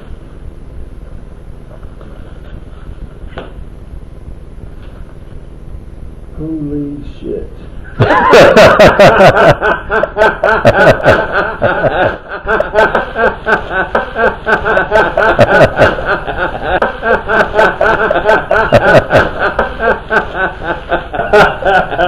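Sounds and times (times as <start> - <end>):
man laughing hard: 7.9 - 22.0.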